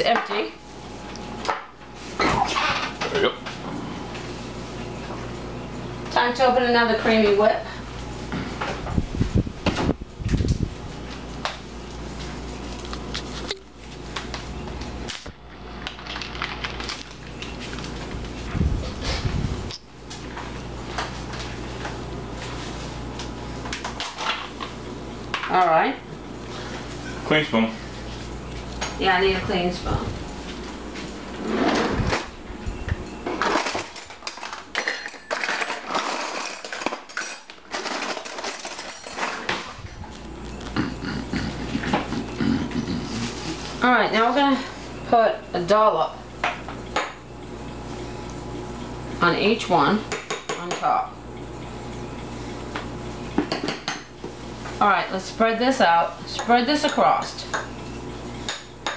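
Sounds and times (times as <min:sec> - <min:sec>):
steady low hum: 0:00.0 - 0:35.2, 0:36.2 - 0:58.9
plastic crinkling: 0:15.8 - 0:17.9.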